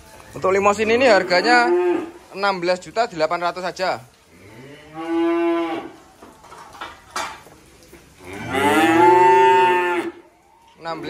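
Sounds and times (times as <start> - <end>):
cattle mooing: 1.1 - 2.2, 4.4 - 6.0, 8.2 - 10.2.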